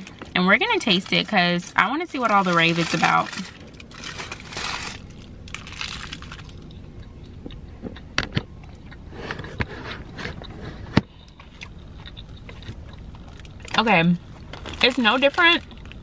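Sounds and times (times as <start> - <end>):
car interior hum: 0.0 - 16.0
paper sleeve rustling: 2.2 - 6.3
person chewing: 3.6 - 13.8.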